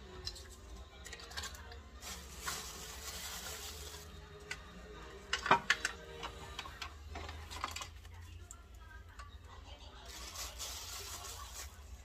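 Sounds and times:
small items clattering: 0.3s - 4.6s, 5.3s - 8.3s, 10.1s - 12.0s
plastic wrapper crinkling: 1.1s - 4.1s, 10.0s - 12.0s.

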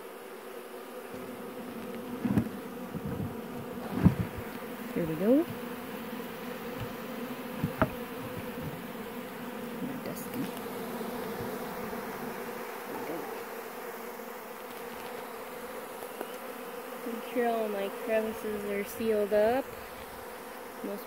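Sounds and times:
bees buzzing: 0.0s - 21.0s.

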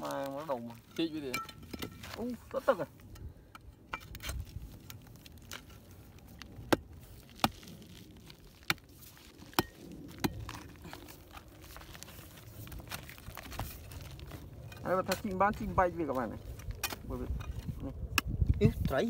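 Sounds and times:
clods crumbling and scraping: 0.0s - 3.1s, 4.0s - 19.0s
digging bar striking hard clay: 6.6s - 7.6s.

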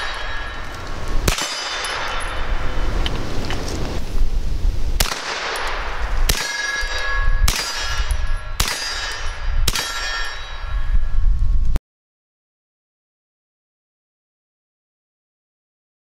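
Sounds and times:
metallic ringing clang: 0.0s - 2.7s, 5.4s - 11.2s
carbine gunshots: 1.2s - 2.6s, 5.0s - 10.2s.

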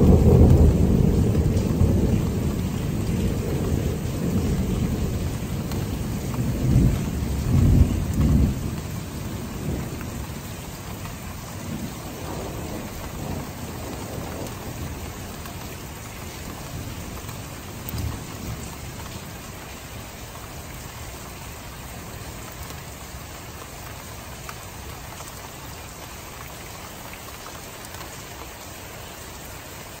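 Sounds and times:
thunder rumbling: 0.0s - 23.3s
steady rain: 0.0s - 30.0s.

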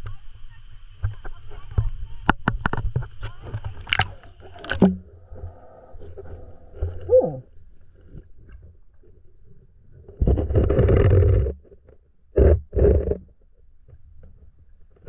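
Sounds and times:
muffled underwater sound: 0.0s - 11.5s
water splashing and sloshing: 0.9s - 10.4s
camera plunging into water: 2.8s - 7.5s
bubbling gurgle: 3.6s - 7.6s.

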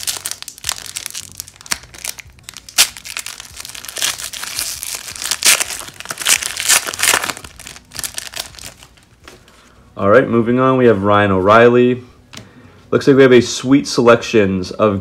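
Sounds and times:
foil wrapper ripping: 0.0s - 9.0s
foil wrapper crinkling: 0.0s - 9.1s.

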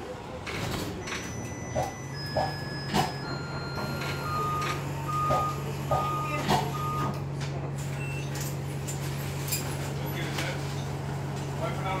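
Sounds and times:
bus running hum: 0.0s - 12.0s
short warning beeps: 1.0s - 7.2s.

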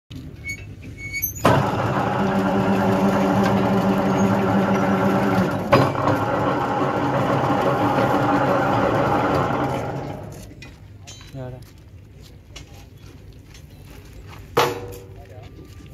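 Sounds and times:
sharp machine clunk: 1.4s - 10.5s
bending machine motor humming: 1.4s - 10.6s.

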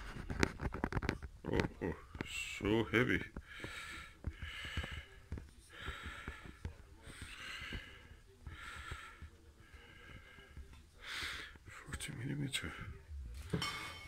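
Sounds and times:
person breathing: 3.4s - 11.6s.

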